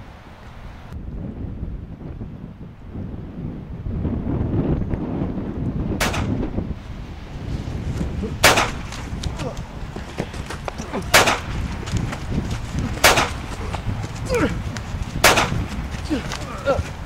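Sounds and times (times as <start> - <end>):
vocal grunts: 8.2 - 8.4, 9.3 - 9.7, 10.7 - 11.2, 13.5 - 14.8, 16.0 - 17.0.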